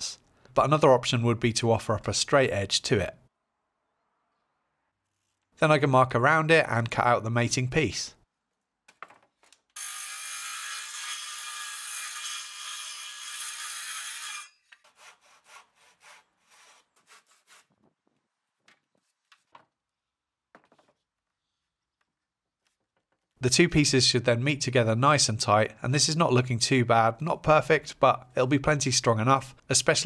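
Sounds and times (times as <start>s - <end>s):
circular saw cutting timber: 9.8s - 16.8s
short hand sawing strokes: 9.8s - 17.7s.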